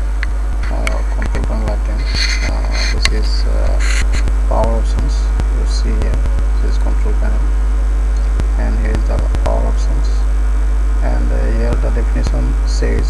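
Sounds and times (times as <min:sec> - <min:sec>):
electrical mains hum: 0:00.0 - 0:13.0
faint voice: 0:00.6 - 0:07.5, 0:08.6 - 0:10.2, 0:11.0 - 0:13.0
short hissy bursts: 0:01.9 - 0:04.3.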